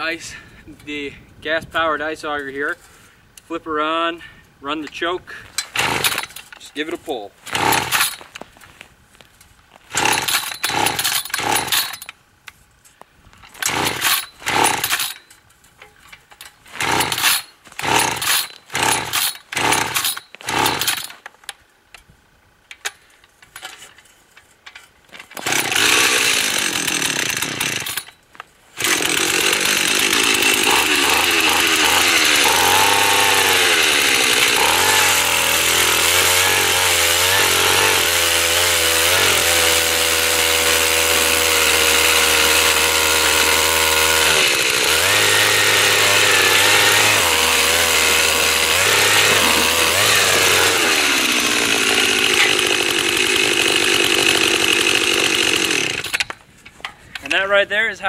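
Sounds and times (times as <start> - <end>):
ice auger engine running: 7.5 - 8.2, 9.9 - 12.0, 13.6 - 15.1, 25.4 - 28.1, 28.8 - 56.2.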